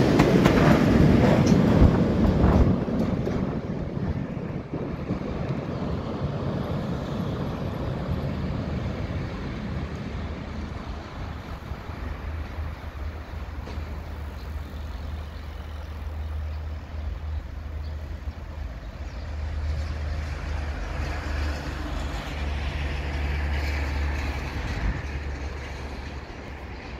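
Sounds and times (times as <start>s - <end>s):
freight train low rumble: 0.0s - 26.9s
train hiss: 6.5s - 18.7s.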